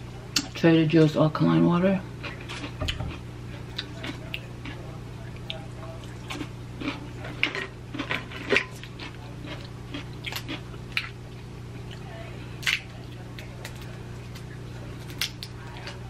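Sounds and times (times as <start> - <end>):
steady low hum: 0.0 - 16.0
chewing: 2.2 - 16.0
shellfish shells cracking: 13.6 - 16.0.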